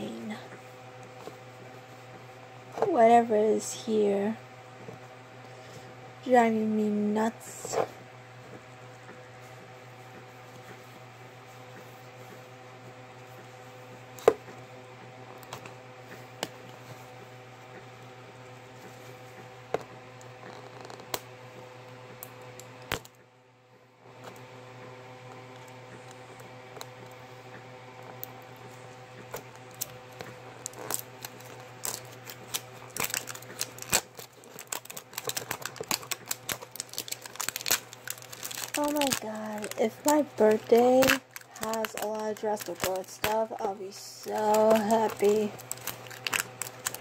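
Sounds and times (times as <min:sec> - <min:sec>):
steady low hum: 0:00.0 - 0:47.0
plastic shrink-wrap crackling: 0:30.6 - 0:47.0.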